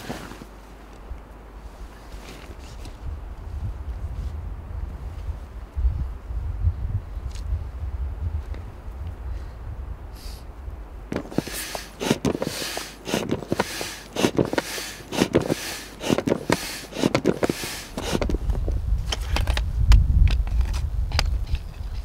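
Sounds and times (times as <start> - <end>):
tent fabric rustling: 0.0 - 0.9, 1.5 - 4.4, 11.1 - 18.6.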